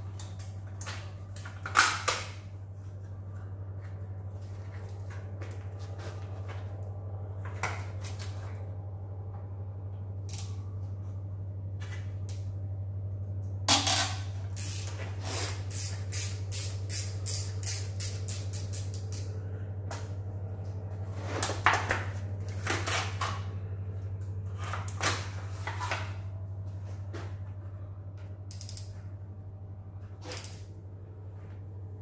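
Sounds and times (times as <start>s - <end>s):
ratchet wrench clicking: 10.3s - 10.5s, 14.6s - 19.3s, 28.5s - 28.9s.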